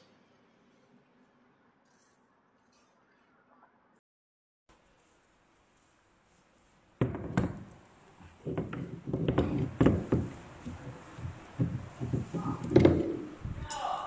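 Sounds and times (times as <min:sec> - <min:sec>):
irregular knocks and clicks: 0:07.0 - 0:13.5.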